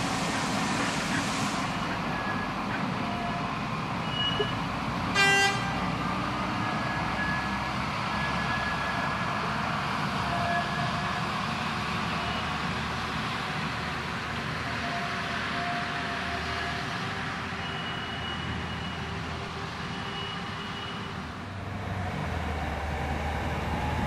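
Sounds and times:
diesel locomotive running slowly: 0.0s - 24.0s
locomotive horn toot: 4.1s - 6.0s.

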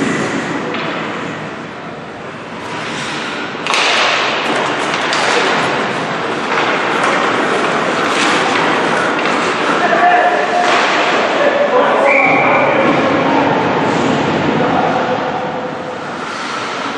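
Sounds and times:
hockey sticks and puck clacking: 0.3s - 1.4s, 2.4s - 12.4s
skate blades scraping ice: 2.4s - 11.4s, 16.0s - 16.9s.

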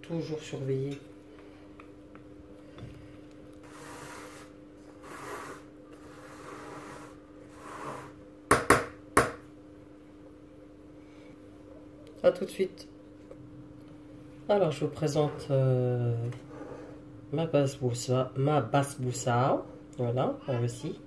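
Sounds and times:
sharp knocks on metal pan: 8.5s - 9.4s.

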